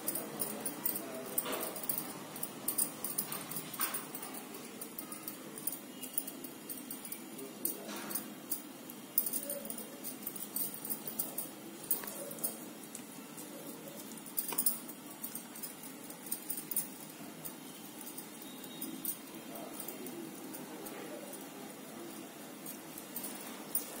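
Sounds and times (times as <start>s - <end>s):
faint steady hum: 0.0s - 24.0s
glass bangles clinking: 0.0s - 24.0s.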